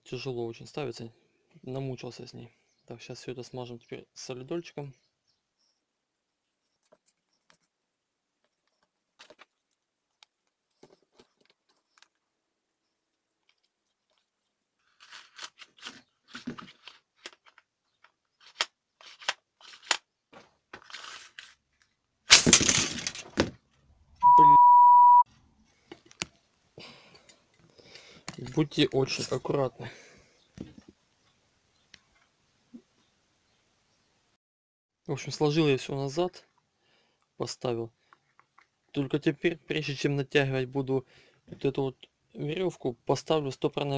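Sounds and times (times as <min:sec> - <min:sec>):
plastic parts clicking and rattling: 0:13.4 - 0:23.6
censor beep: 0:24.2 - 0:25.3.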